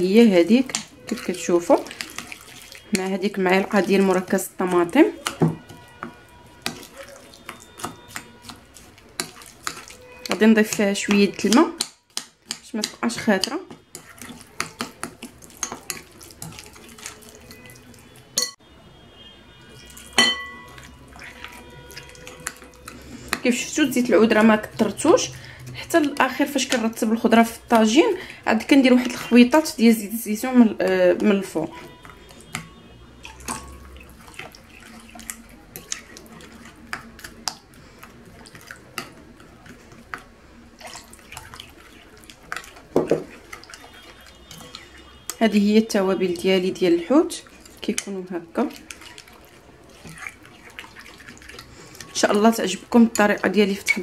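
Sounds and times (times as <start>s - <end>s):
marinade sloshing and squelching: 0.0s - 54.0s
metal spoon scraping glass bowl: 0.4s - 18.6s, 19.8s - 25.4s, 43.3s - 45.8s
water pouring into bowl: 0.8s - 10.4s, 13.9s - 18.4s, 19.8s - 23.4s, 31.7s - 45.4s, 47.3s - 53.2s
sharp glass clink: 20.2s - 20.7s.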